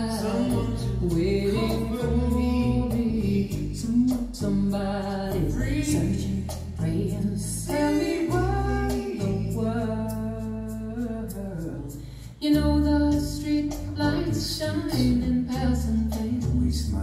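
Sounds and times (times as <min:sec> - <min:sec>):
woman singing: 0:00.0 - 0:09.8, 0:12.4 - 0:17.0
bass line: 0:00.0 - 0:17.0.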